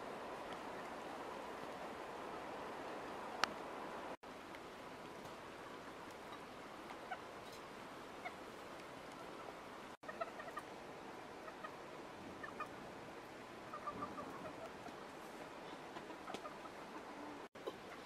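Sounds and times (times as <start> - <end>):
chickens clucking: 6.9 - 8.4, 10.0 - 10.8, 11.4 - 12.8, 13.7 - 18.0.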